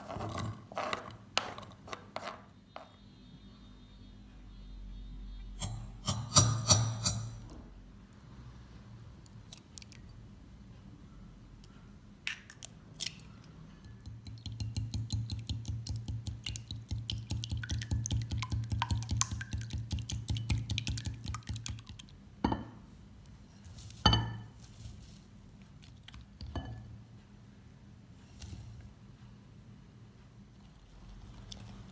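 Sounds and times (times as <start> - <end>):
whisk beating eggs in glass bowl: 13.8 - 22.1
whisk knocking against bowl: 13.9 - 22.0.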